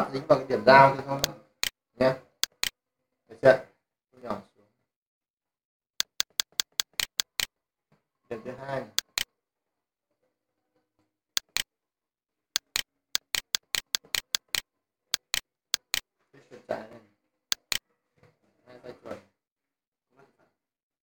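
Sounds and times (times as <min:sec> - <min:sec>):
computer mouse clicking: 0:02.4 - 0:02.7, 0:06.0 - 0:07.5, 0:09.0 - 0:09.3, 0:11.4 - 0:11.7, 0:12.6 - 0:14.6, 0:15.2 - 0:16.0, 0:17.5 - 0:17.8.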